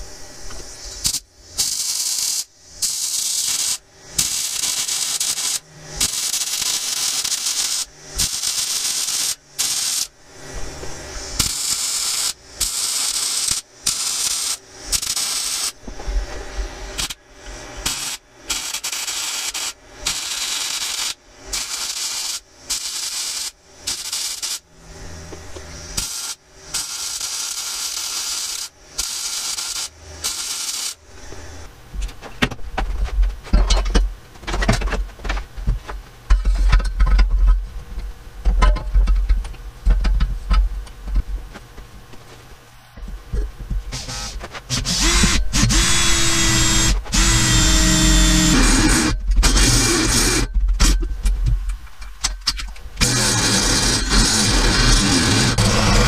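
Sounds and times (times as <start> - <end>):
arc welding hiss: 0.0 - 32.0, 43.3 - 51.0, 51.7 - 56.0.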